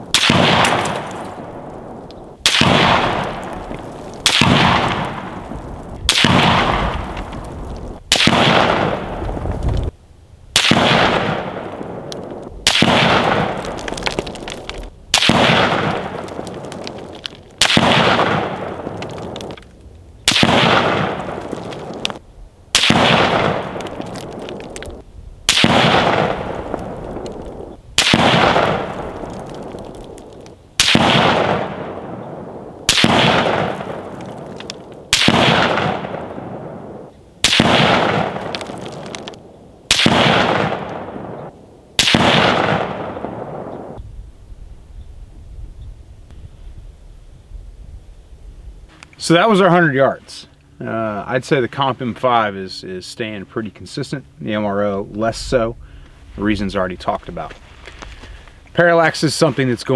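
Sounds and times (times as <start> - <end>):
rifle shots echoing: 0.1 - 7.2, 8.0 - 9.2, 10.6 - 14.5, 15.1 - 19.6, 20.2 - 24.8, 25.5 - 30.2, 30.8 - 44.0.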